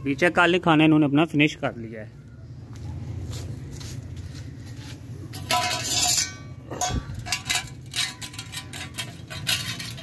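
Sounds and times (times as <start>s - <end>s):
metal bowl clattering on concrete: 5.3s - 10.0s.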